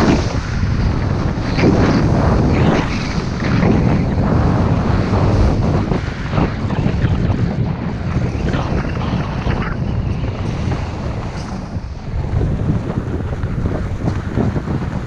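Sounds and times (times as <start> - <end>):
skis scraping over snow: 0.0 - 15.0
wind buffeting microphone: 0.0 - 15.0.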